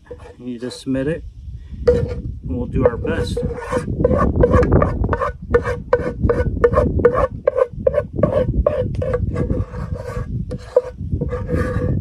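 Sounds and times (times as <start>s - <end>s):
spoon scraping container: 0.0s - 0.9s, 1.9s - 12.0s.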